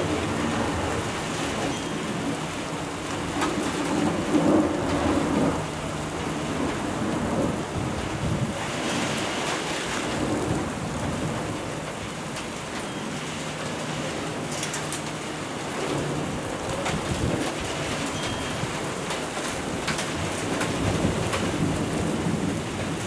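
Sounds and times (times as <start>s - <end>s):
rolling thunder rumble: 0.0s - 12.8s, 13.8s - 23.0s
steady rain falling: 0.0s - 23.0s.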